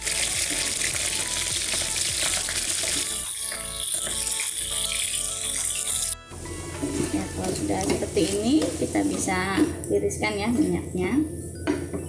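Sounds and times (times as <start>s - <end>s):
chicken skin sizzling in oil: 0.0s - 6.2s
background music: 0.0s - 12.0s.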